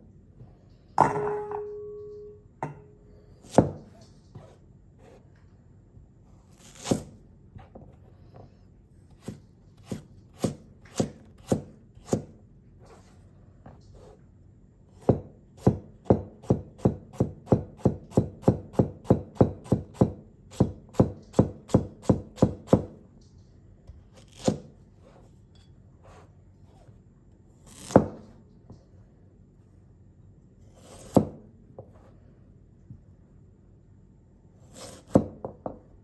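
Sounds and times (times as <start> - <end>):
cleaver chopping carrots on board: 9.2 - 12.4, 15.0 - 23.0.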